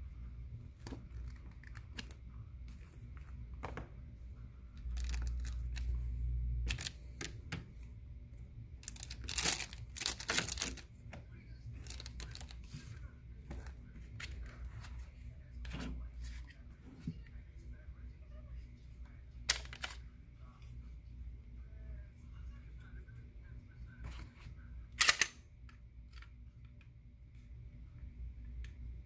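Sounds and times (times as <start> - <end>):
paper and plastic crinkling: 4.8 - 6.0, 8.8 - 10.8, 11.8 - 12.9.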